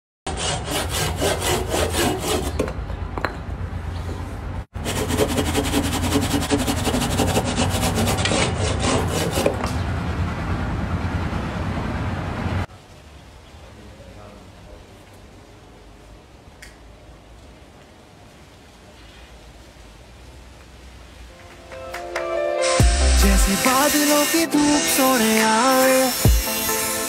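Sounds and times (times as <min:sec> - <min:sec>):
hand saw rasping through log: 0:00.3 - 0:02.6, 0:04.8 - 0:09.7, 0:23.6 - 0:27.0.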